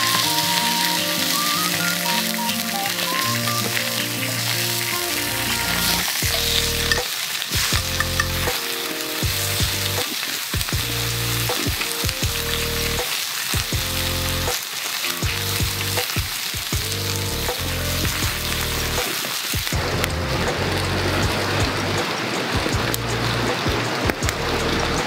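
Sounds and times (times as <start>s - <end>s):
beef sizzling in a skillet: 0.0s - 21.3s.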